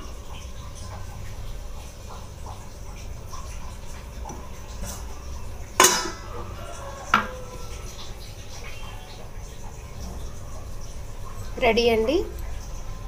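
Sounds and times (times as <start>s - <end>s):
metal lid clanking on pan: 5.8s - 6.3s, 7.1s - 7.4s.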